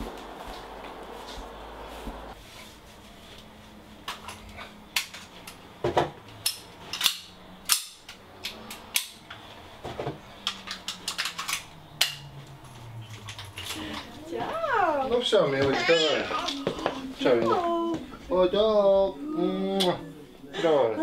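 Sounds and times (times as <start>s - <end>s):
gear clicking and snapping: 6.4s - 9.4s, 10.4s - 14.1s.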